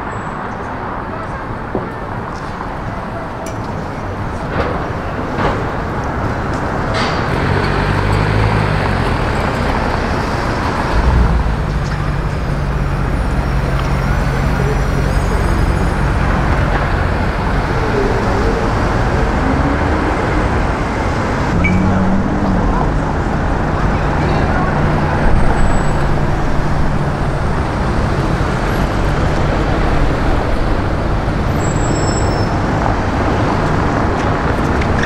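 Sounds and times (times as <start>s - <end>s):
car engines and road noise: 0.0s - 35.0s.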